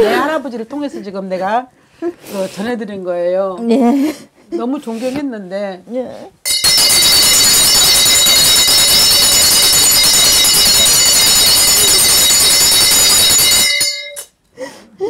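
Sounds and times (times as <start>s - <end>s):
brass hand bell jangling: 6.5s - 14.3s.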